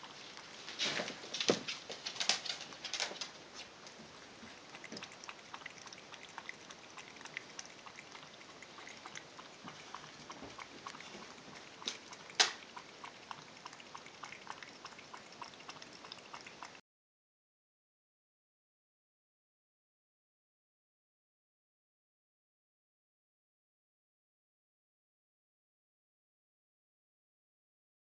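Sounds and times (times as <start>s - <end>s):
cat lapping water: 0.0s - 16.8s.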